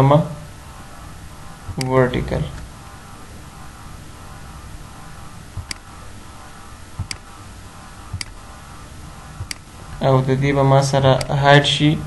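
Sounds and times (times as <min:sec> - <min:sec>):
low hum and hiss: 0:00.0 - 0:12.0
computer mouse clicks: 0:01.7 - 0:02.0, 0:05.6 - 0:05.9, 0:07.0 - 0:07.3, 0:08.1 - 0:08.4, 0:09.4 - 0:09.7.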